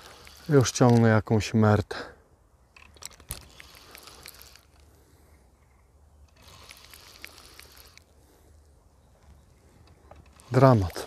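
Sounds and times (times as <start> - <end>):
fishing reel clicking: 0.0 - 1.1, 2.8 - 4.9, 6.3 - 8.1, 10.2 - 11.0.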